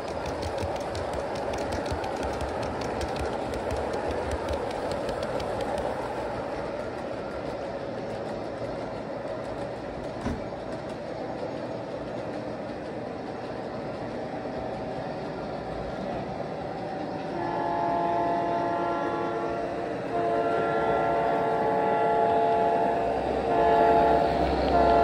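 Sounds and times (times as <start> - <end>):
train running rumble: 0.0 - 25.0
locomotive horn blasts: 17.4 - 25.0.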